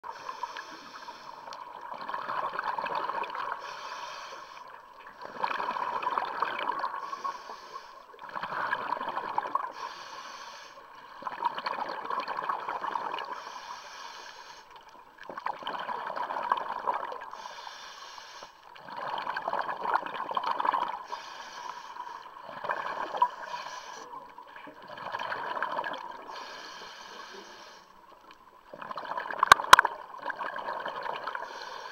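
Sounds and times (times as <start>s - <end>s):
regulator inhalation hiss: 0.1s - 1.5s, 3.6s - 4.8s, 7.0s - 8.0s, 9.8s - 10.8s, 13.4s - 14.7s, 17.4s - 18.6s, 21.1s - 22.3s, 26.3s - 27.9s
exhalation bubbling underwater: 5.3s - 7.0s, 8.2s - 9.7s, 11.2s - 13.3s, 24.8s - 26.2s, 28.7s - 31.4s.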